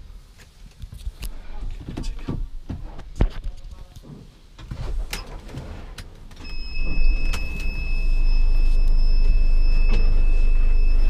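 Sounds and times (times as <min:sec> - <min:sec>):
diesel engine starting and idling: 0:04.8 - 0:11.0.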